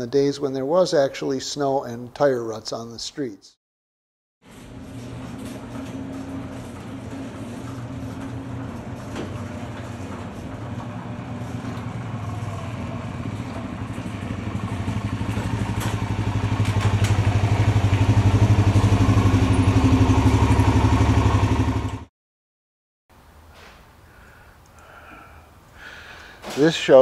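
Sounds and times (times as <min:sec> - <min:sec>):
motorcycle engine running: 0:05.6 - 0:22.1.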